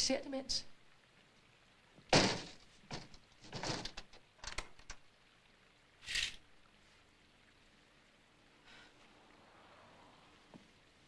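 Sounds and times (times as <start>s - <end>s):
rustling: 2.1s - 4.2s.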